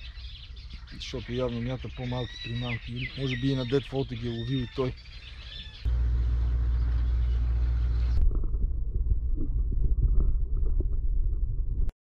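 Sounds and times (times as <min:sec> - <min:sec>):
low underwater rumble: 0:05.8 - 0:11.9.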